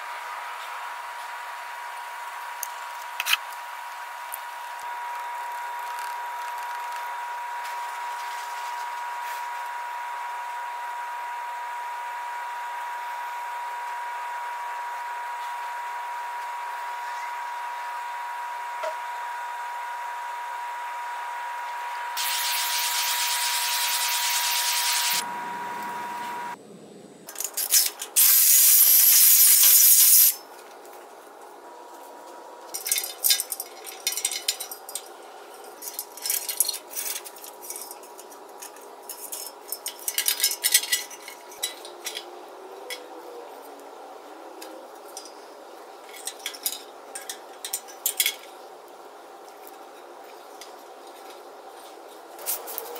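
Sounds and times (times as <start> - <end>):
steady hiss: 22.2 - 25.3, 27.7 - 30.4
clicks and rattles of light fittings: 32.7 - 35.1, 35.7 - 42.3, 46.0 - 48.6.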